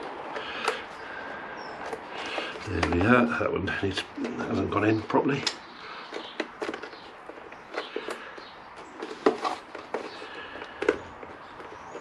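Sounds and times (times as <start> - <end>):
plastic airbox clicks and knocks: 1.8 - 3.3, 5.4 - 12.0.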